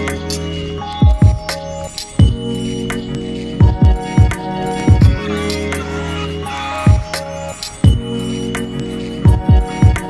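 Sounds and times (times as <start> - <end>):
held synth chords: 0.0 - 10.0
deep kick drum: 1.0 - 1.5, 2.2 - 2.4, 3.6 - 5.2, 6.9 - 7.1, 7.8 - 8.1, 9.3 - 10.0.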